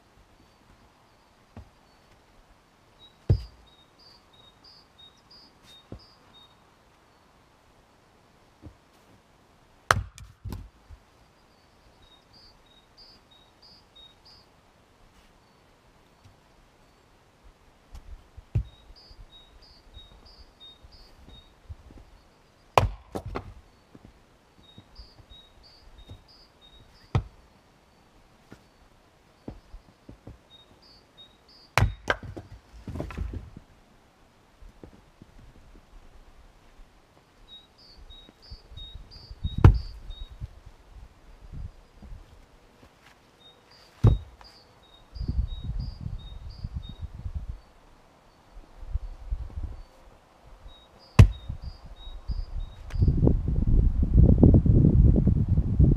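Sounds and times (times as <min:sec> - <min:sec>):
axe striking a log: 0:03.3 - 0:03.5, 0:09.9 - 0:10.7, 0:22.8 - 0:23.6, 0:27.1 - 0:27.3, 0:31.8 - 0:33.4, 0:39.6 - 0:40.0, 0:44.0 - 0:44.3, 0:51.2 - 0:51.6.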